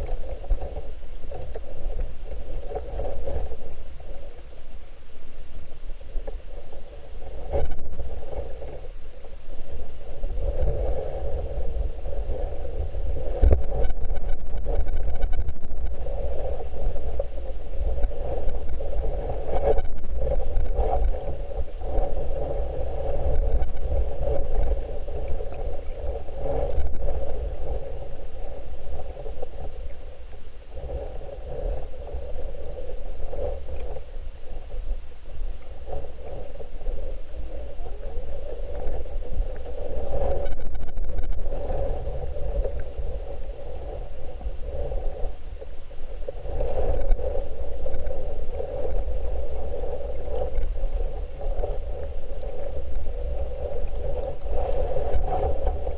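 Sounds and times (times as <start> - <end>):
muffled underwater creek rush: 0.0 - 55.9.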